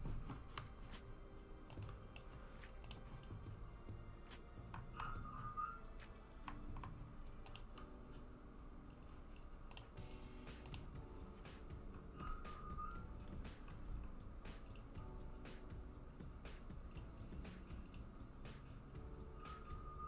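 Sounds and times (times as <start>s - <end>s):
faint irregular clicks and taps: 1.7s - 3.6s, 6.0s - 7.9s, 8.9s - 11.0s.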